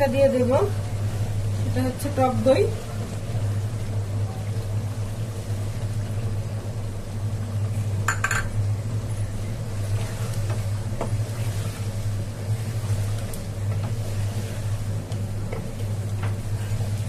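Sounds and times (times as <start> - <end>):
utensil clinking against pot: 8.1 - 8.6.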